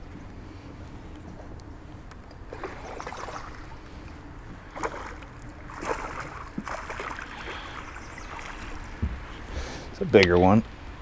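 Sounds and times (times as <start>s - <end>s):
fish splashing at water surface: 2.5s - 9.3s.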